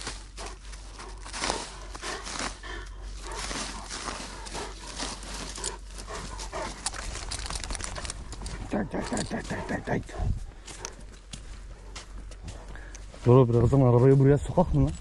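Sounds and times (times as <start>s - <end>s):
rustling and scuffing: 0.0s - 15.0s
dog making non-barking sounds: 3.3s - 11.1s.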